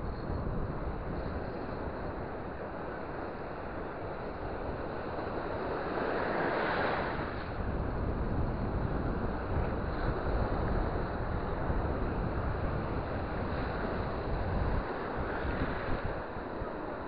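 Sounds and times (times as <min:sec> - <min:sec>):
wind rumbling on microphone: 0:00.0 - 0:17.0
surf breaking on shore: 0:00.6 - 0:17.0.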